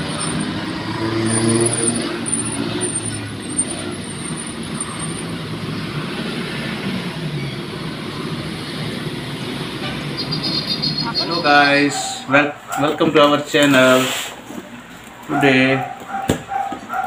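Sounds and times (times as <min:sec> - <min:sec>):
deep engine drone: 0:00.0 - 0:11.5
road noise inside moving car: 0:00.0 - 0:12.8.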